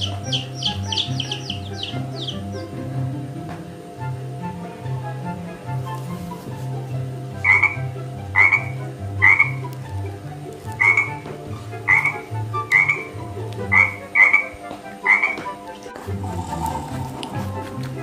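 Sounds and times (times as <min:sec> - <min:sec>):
frog croaking: 0:00.0 - 0:02.8, 0:07.4 - 0:09.7, 0:10.8 - 0:17.6
steady low background noise: 0:00.0 - 0:18.0.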